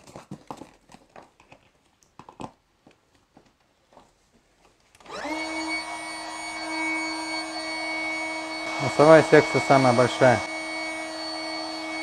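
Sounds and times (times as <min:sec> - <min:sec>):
electric air pump humming: 0:05.0 - 0:12.0.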